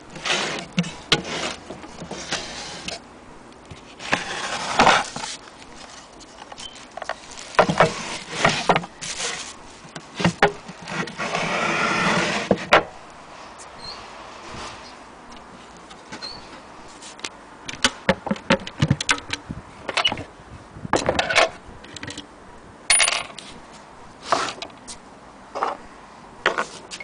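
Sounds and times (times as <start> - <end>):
wooden case scraping: 0.1 - 3.0, 3.8 - 13.0.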